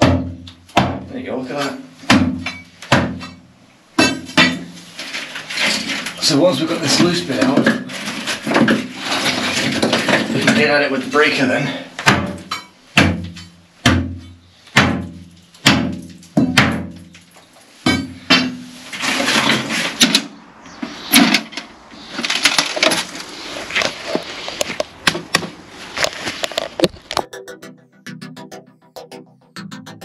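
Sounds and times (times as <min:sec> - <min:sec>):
pry bar striking concrete: 0:00.0 - 0:01.1, 0:02.1 - 0:03.4, 0:04.0 - 0:04.8, 0:12.0 - 0:17.1, 0:17.8 - 0:20.3.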